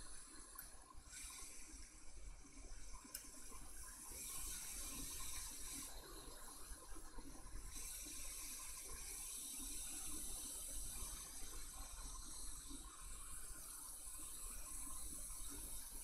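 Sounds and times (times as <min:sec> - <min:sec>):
hot air station hissing: 0:04.0 - 0:06.3.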